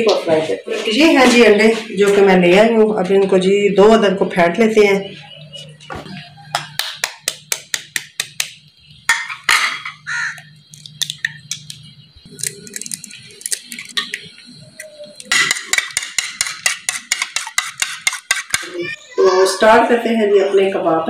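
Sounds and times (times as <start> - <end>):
eggshells tapped with metal utensil: 6.6 - 9.4, 10.3 - 11.8, 15.2 - 18.7
utensil clicking against bowl: 10.3 - 11.8, 12.4 - 18.7.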